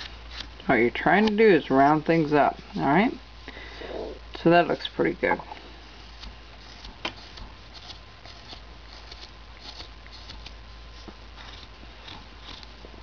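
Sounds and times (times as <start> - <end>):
knife scraping wood: 6.1 - 12.8.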